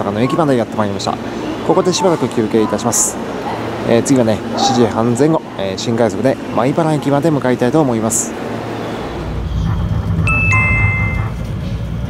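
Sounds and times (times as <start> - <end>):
train running rumble: 0.0 - 12.0
two-note electronic chime: 10.3 - 11.4.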